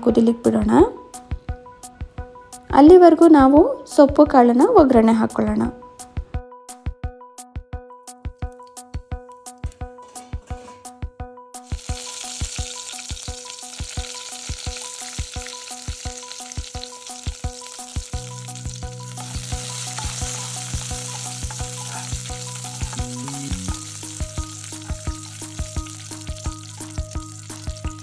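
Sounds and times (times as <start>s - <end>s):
background music: 0.0s - 28.0s
oil sizzling in a wok: 11.6s - 28.0s
metal spoon stirring: 18.3s - 24.3s.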